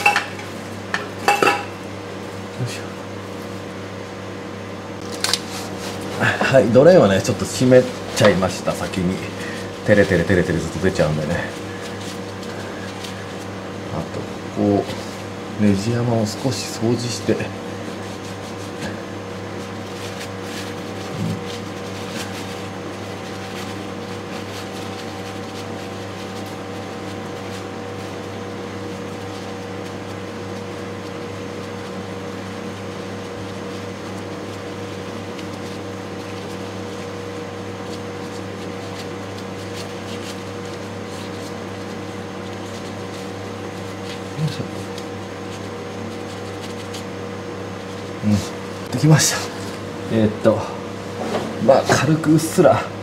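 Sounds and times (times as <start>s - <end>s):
steady machine hum: 0.0s - 53.0s.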